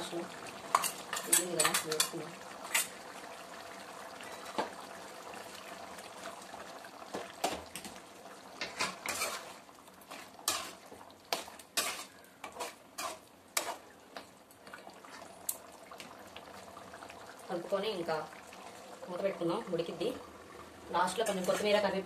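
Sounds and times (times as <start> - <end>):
metal spoon scraping pan: 0.7 - 2.9, 8.6 - 13.9, 21.1 - 21.9.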